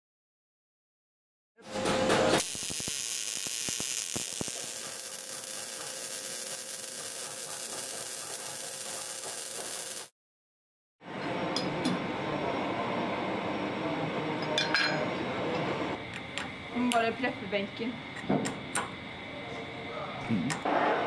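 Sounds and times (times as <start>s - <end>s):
welding arc crackling hiss: 2.3s - 10.1s.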